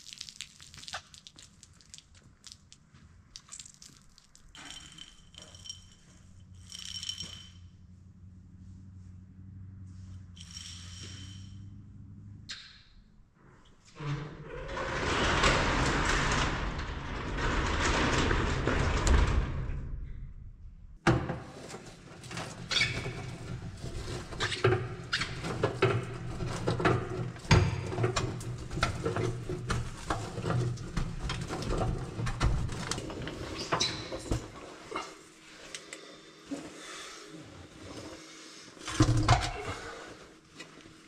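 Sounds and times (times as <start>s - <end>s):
garage door rumbling on tracks: 14.0s - 33.6s.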